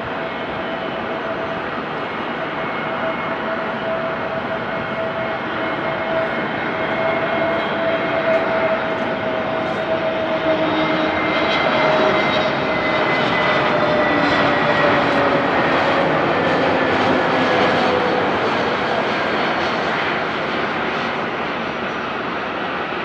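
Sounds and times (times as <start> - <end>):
jet engine roar: 0.0 - 23.0.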